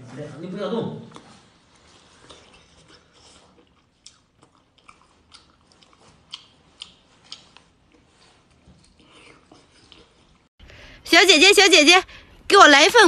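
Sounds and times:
person chewing wetly: 0:01.1 - 0:10.5.

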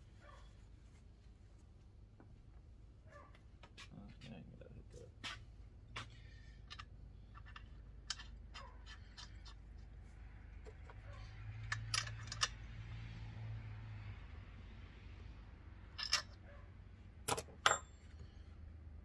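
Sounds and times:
clicks and taps of parts: 0:05.2 - 0:09.9, 0:10.6 - 0:11.0, 0:11.6 - 0:12.6, 0:17.2 - 0:18.2.

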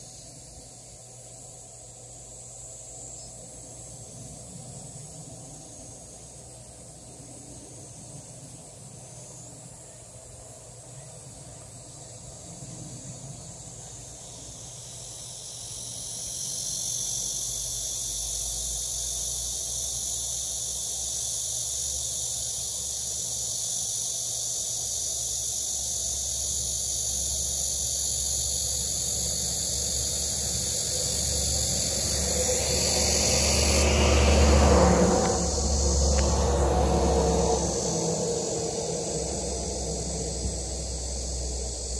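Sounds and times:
insects buzzing: 0:00.0 - 0:41.9
low rumble: 0:31.0 - 0:41.9.

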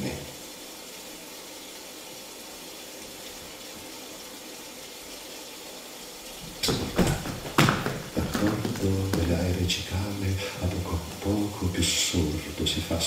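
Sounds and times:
rain hissing: 0:00.0 - 0:13.0
body thumping on stage floor: 0:06.6 - 0:09.2.

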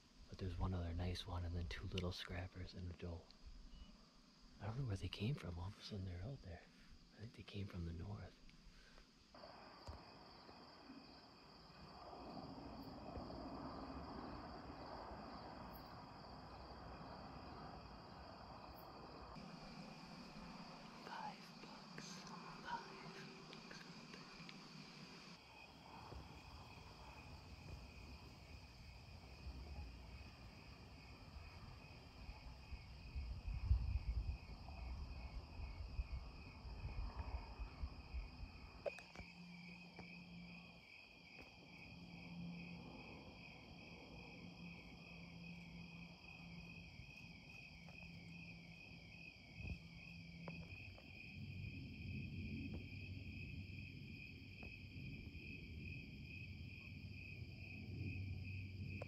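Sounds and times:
crickets chirping: 0:00.0 - 0:59.0
low rumbling on microphone: 0:25.8 - 0:38.7.

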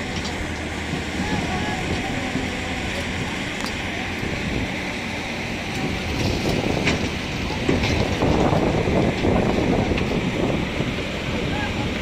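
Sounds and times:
heavy machinery rumble: 0:00.0 - 0:12.0
wind buffeting microphone: 0:00.0 - 0:12.0.

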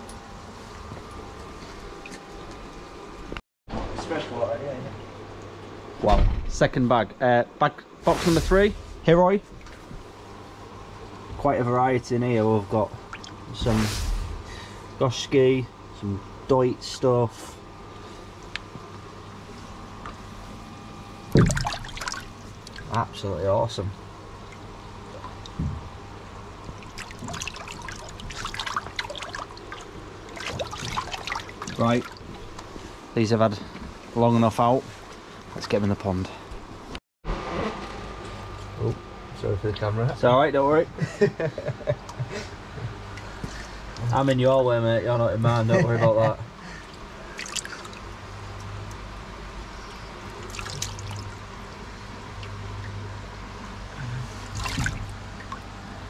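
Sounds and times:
low steady hum: 0:00.0 - 0:56.0
water splashing and trickling: 0:13.0 - 0:13.4, 0:21.3 - 0:23.1, 0:26.6 - 0:32.6, 0:47.3 - 0:48.1, 0:50.3 - 0:53.0, 0:54.4 - 0:55.8.

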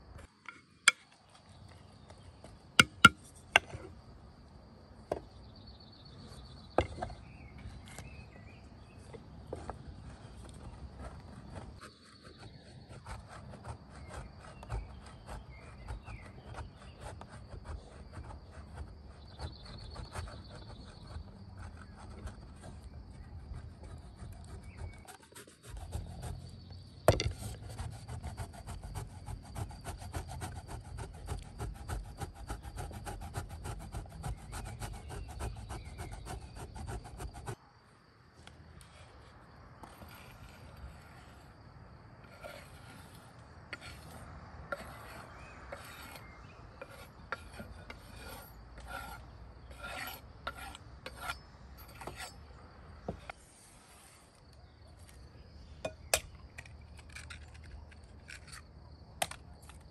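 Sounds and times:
rapid rasping scraping strokes: 0:10.9 - 0:22.9, 0:27.3 - 0:37.6, 0:42.2 - 0:52.4.

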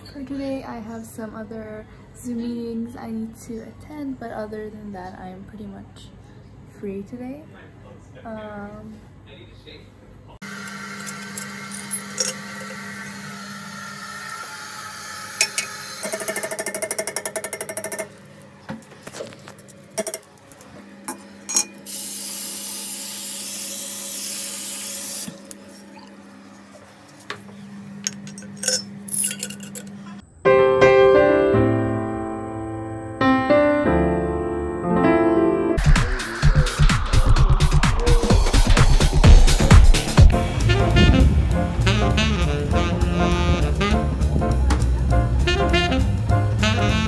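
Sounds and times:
loud rapid buzzing rattle: 0:15.5 - 0:18.1
electronic music: 0:35.8 - 0:44.2.

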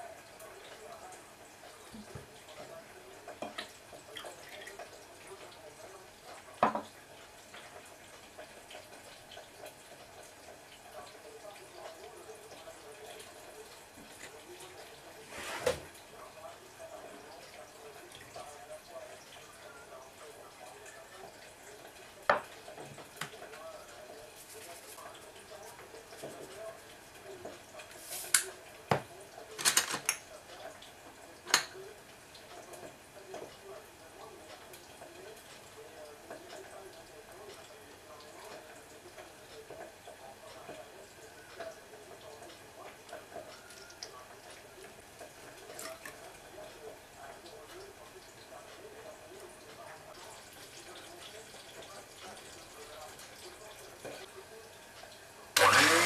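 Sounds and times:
glass set down on counter: 0:06.6 - 0:06.9, 0:22.3 - 0:22.5.

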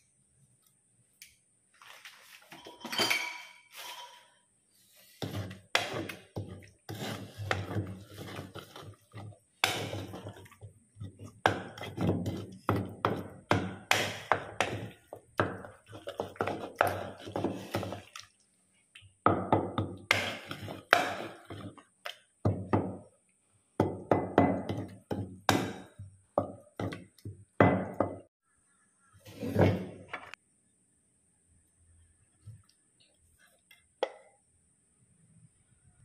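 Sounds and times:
pestle thudding in a mortar: 0:11.4 - 0:18.0.

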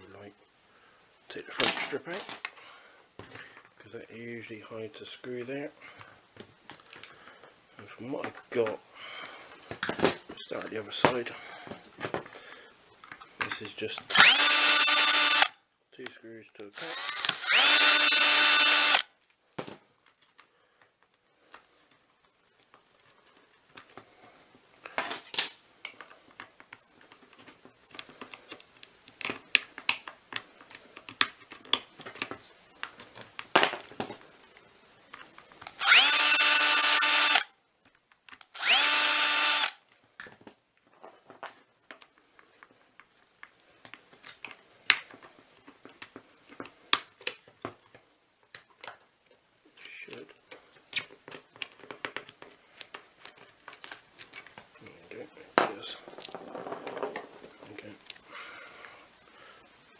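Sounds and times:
electric screwdriver whirring: 0:14.1 - 0:15.6, 0:16.8 - 0:19.1, 0:35.8 - 0:37.5, 0:38.5 - 0:39.8.

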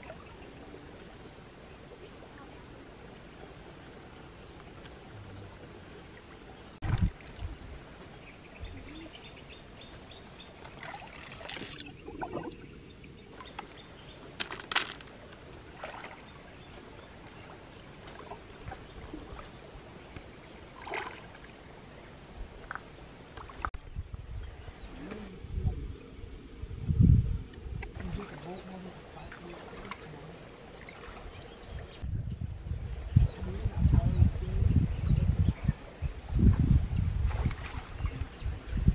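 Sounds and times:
water sloshing and splashing: 0:01.9 - 0:08.2, 0:09.8 - 0:21.7, 0:22.5 - 0:23.8, 0:27.6 - 0:31.7, 0:36.5 - 0:38.5.

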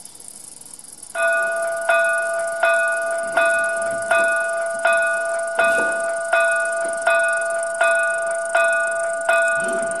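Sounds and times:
faint hiss: 0:00.0 - 0:02.7
locomotive bell ringing: 0:01.1 - 0:10.0.

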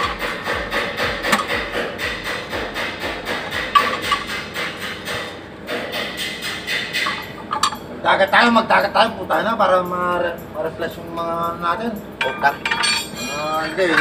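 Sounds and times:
hammer tapping on metal: 0:00.0 - 0:07.9.

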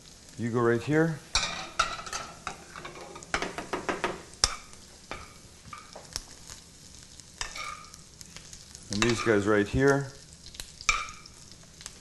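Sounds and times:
faint sizzle: 0:00.0 - 0:12.0
metal spoon clinking in pan: 0:10.9 - 0:11.3.

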